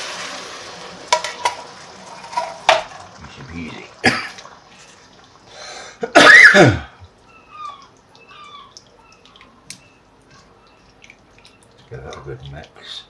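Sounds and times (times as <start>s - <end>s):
person coughing: 4.0s - 4.4s, 6.0s - 7.0s.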